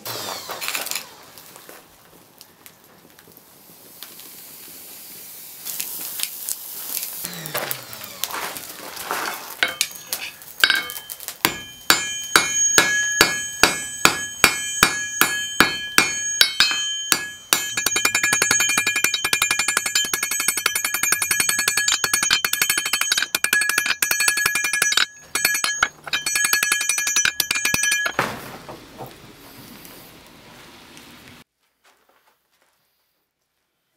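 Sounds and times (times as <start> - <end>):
hammer striking ringing anvil: 9.6 - 28.3.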